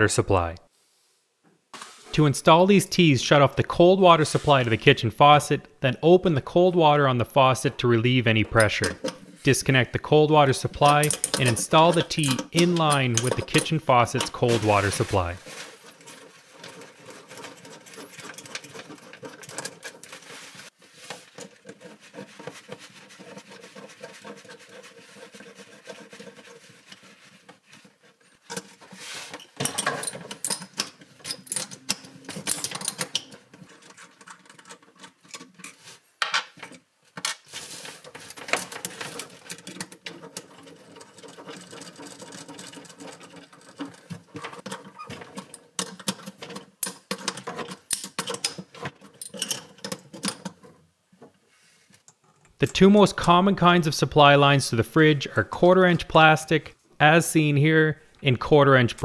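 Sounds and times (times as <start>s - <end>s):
metal fittings clicking and scraping: 8.3s - 9.8s, 10.4s - 35.9s, 36.6s - 51.3s.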